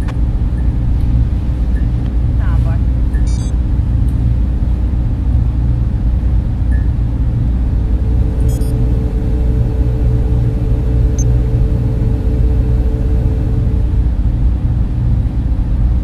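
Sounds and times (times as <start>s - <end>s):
deep rumbling drone: 0.0s - 16.0s
high electronic chirps: 3.2s - 3.5s, 7.8s - 14.0s
steady electronic tone: 6.8s - 14.6s.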